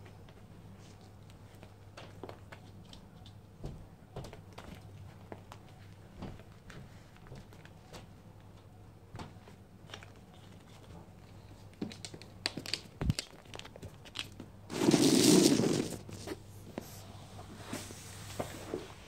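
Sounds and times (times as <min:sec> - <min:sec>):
dog pushing into bag: 0:14.7 - 0:16.4
fabric bag rustling: 0:14.7 - 0:16.4
kitten scratching inside bag: 0:14.7 - 0:16.4.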